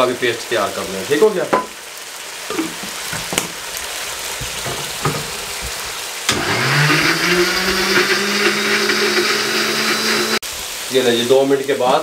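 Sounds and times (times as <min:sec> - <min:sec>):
soft sizzle: 0:00.0 - 0:12.0
blender motor grinding: 0:06.3 - 0:10.4.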